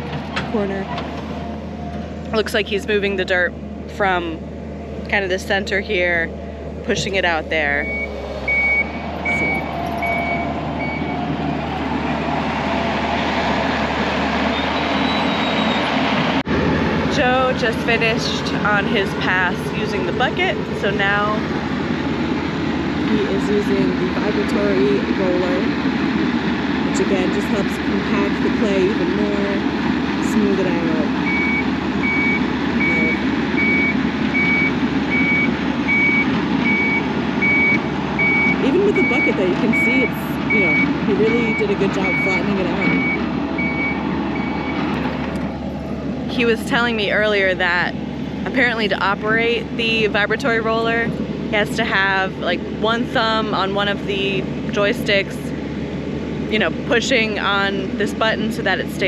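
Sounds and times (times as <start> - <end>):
skid steer engine running: 0.0 - 59.0
backup alarm beeps: 7.0 - 11.2, 31.1 - 44.8.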